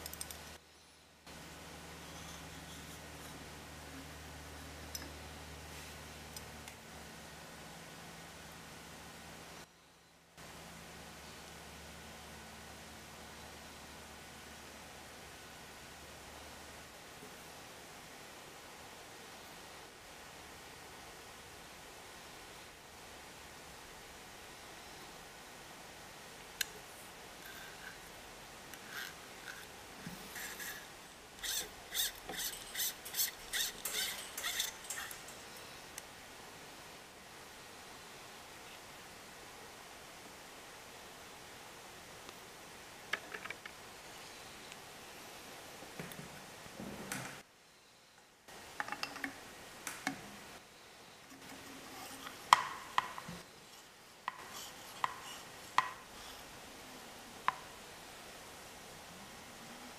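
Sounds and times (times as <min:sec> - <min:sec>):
cable scraping through housing: 0:28.8 - 0:35.4.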